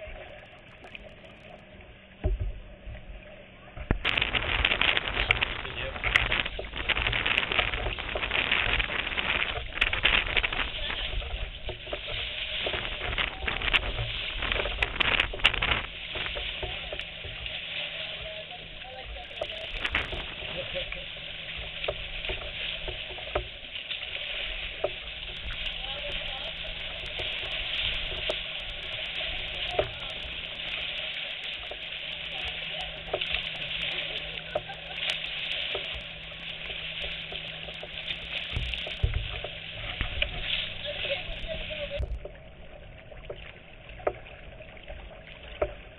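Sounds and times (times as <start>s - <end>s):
kayak paddle splashing: 0.0s - 45.9s
water lapping against hull: 0.0s - 45.9s
knocks on hull: 3.8s - 17.5s, 35.7s - 42.4s.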